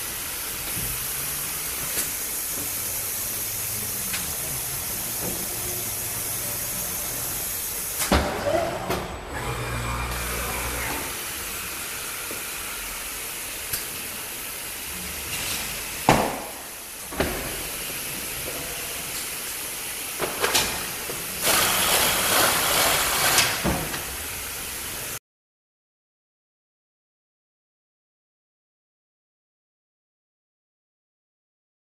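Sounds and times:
hiss of air: 0:00.0 - 0:08.1
machine hum: 0:00.0 - 0:13.1.

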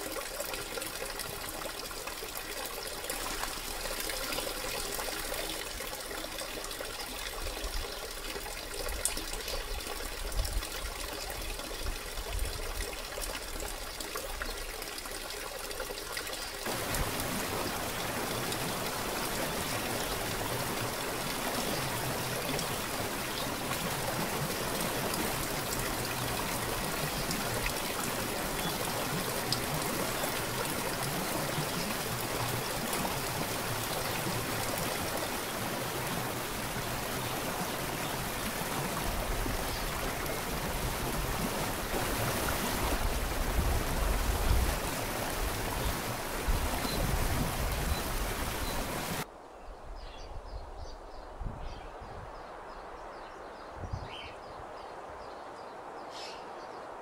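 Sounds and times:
waterfall splashing into pool: 0:00.0 - 0:06.9, 0:15.3 - 0:49.3.

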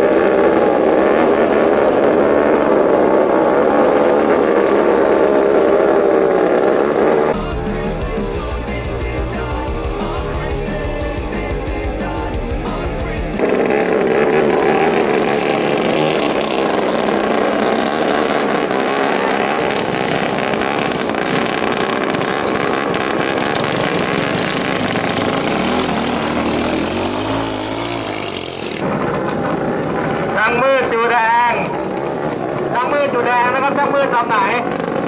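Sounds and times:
water noise: 0:00.0 - 0:33.4
racing boat engines droning: 0:00.0 - 0:35.0.

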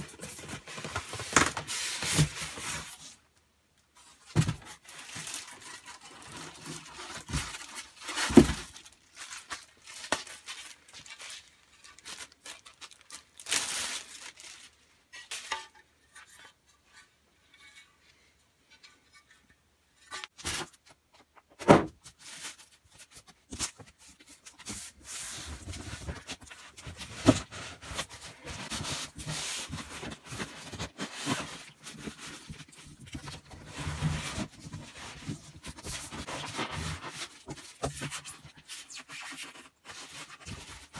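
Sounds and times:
styrofoam and cardboard scraping: 0:00.0 - 0:03.2, 0:04.3 - 0:11.1, 0:22.0 - 0:40.9
plastic wrap rustling: 0:04.1 - 0:15.6, 0:22.1 - 0:40.9.

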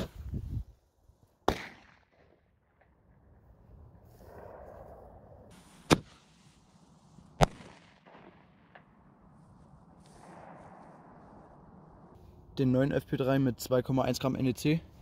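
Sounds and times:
firecracker bangs: 0:05.5 - 0:06.3.

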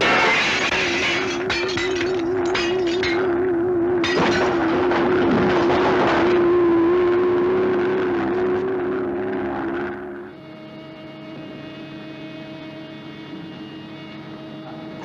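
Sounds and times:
glass breaking and debris crashing: 0:00.0 - 0:03.3, 0:04.0 - 0:06.2
warbling mechanical drone: 0:00.1 - 0:15.0.

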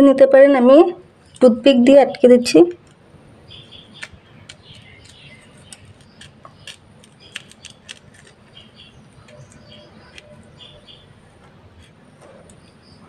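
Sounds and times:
banana leaf crinkling: 0:02.8 - 0:12.6
toothpick piercing leaf clicks: 0:03.9 - 0:10.8.

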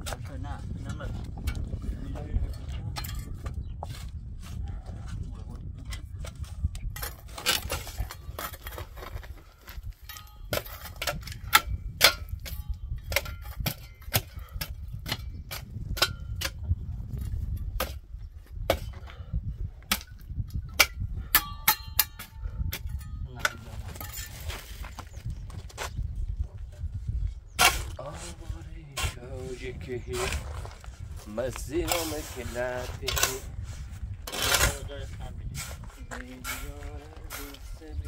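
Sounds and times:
pickaxe and shovel striking stone: 0:10.0 - 0:16.6, 0:19.9 - 0:24.5.

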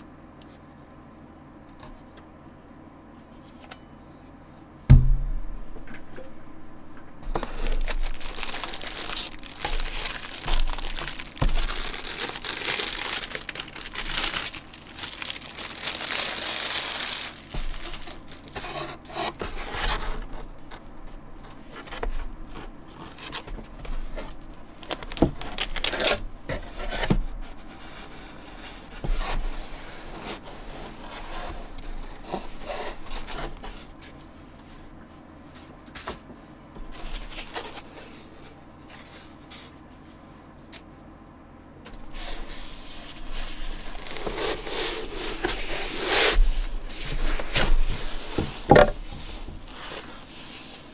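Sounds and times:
rustling and rubbing: 0:07.3 - 0:35.8, 0:41.9 - 0:50.9
plastic wrap tearing and crinkling: 0:07.4 - 0:19.5, 0:24.3 - 0:26.3, 0:37.0 - 0:38.2, 0:42.0 - 0:50.9.

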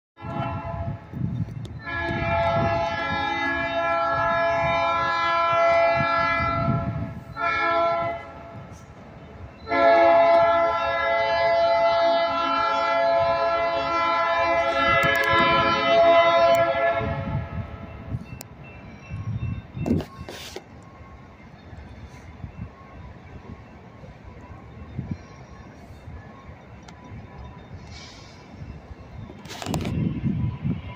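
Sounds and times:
locomotive air horn: 0:00.2 - 0:08.9, 0:09.7 - 0:18.1
passing train rumble: 0:00.2 - 0:30.9.

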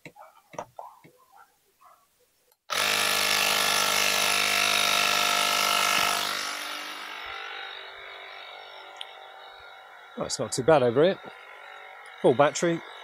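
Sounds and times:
electric tyre inflator compressor running: 0:02.7 - 0:13.0.

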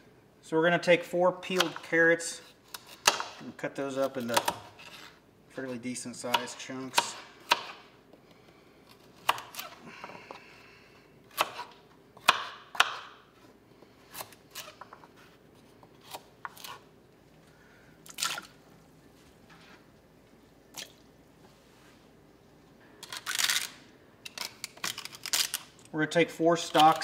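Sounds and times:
knife chopping on cutting board: 0:01.6 - 0:01.9, 0:06.3 - 0:07.8, 0:11.3 - 0:13.2.

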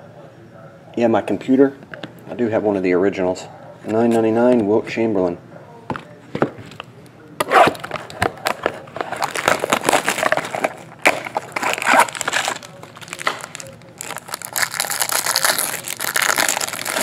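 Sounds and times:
plastic shrink-wrap crackling and tearing: 0:09.1 - 0:17.0.

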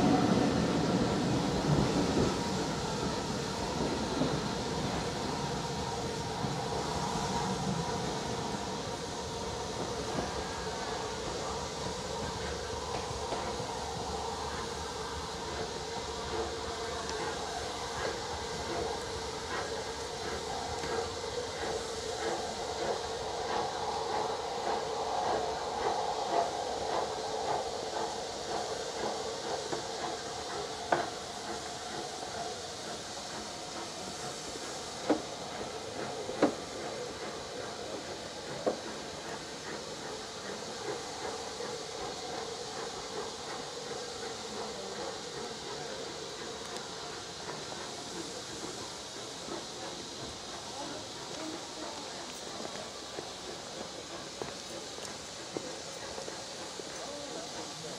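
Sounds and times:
steady hiss of steam: 0:00.0 - 0:57.9.

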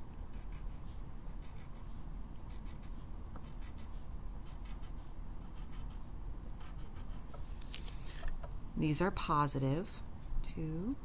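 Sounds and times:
pencil scratching on paper: 0:00.3 - 0:07.4.

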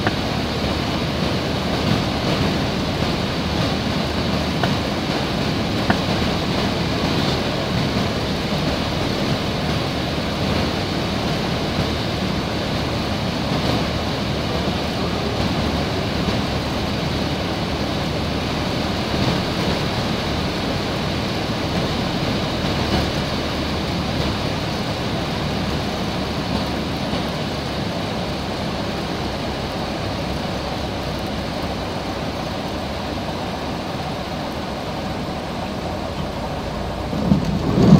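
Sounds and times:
aircraft engine drone: 0:00.0 - 0:37.9
rushing air: 0:00.0 - 0:37.9.

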